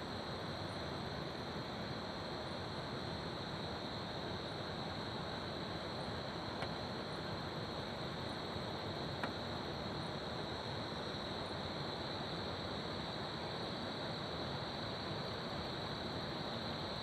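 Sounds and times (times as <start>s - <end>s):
crickets chirring: 0.1s - 17.0s
faint click: 9.2s - 9.4s.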